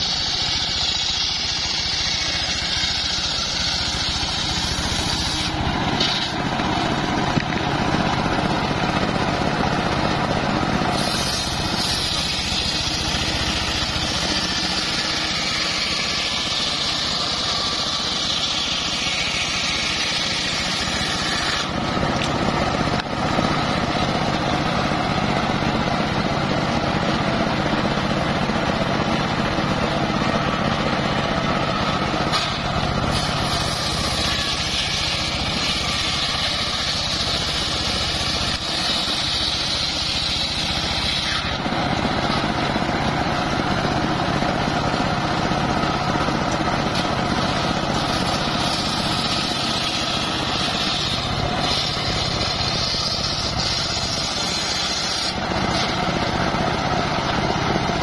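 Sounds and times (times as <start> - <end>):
saw blade hissing through wood: 0.0 - 6.7, 10.8 - 21.8, 32.3 - 41.6, 47.3 - 56.1
table saw engine droning: 0.0 - 58.0.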